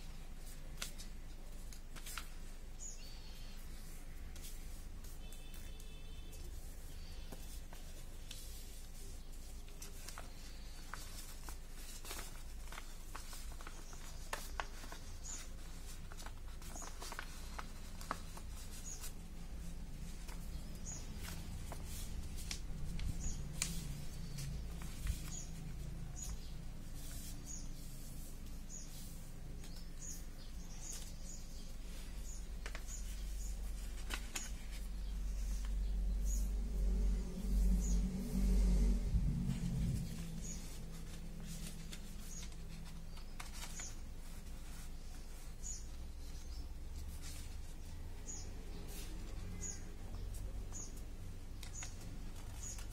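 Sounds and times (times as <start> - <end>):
paper rustling and crinkling: 0.0 - 37.6, 38.2 - 50.8, 51.5 - 52.9
paper crease clicks: 4.3 - 27.4, 31.9 - 35.8, 39.8 - 45.5
low rumble: 35.7 - 41.9.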